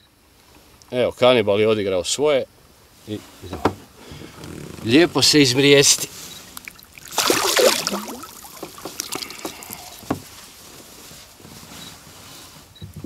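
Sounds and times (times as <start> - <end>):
water splashing: 6.5 - 10.1
handling noise: 6.5 - 11.8.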